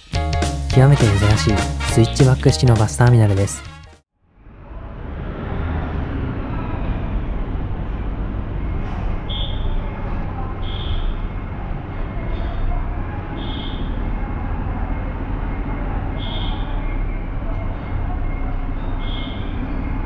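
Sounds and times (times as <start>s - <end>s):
road traffic rumble: 4.2s - 20.0s.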